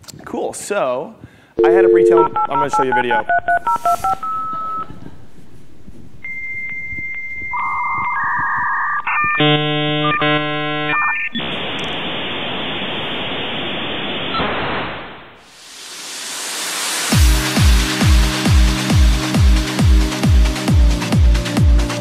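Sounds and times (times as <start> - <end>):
dial-up modem tones: 1.6 - 5.0, 6.3 - 11.5
static hiss: 10.2 - 17.2.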